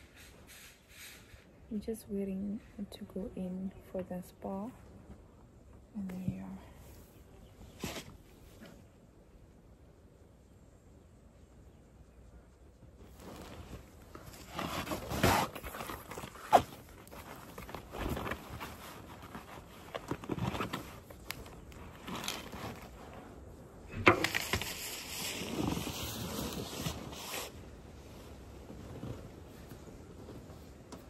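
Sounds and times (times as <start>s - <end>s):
straw basket bag rustling: 13.1s - 23.4s.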